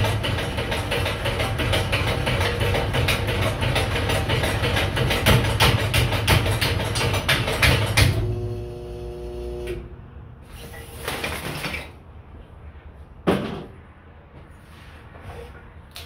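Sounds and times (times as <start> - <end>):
machine drive hum: 7.8 - 10.0.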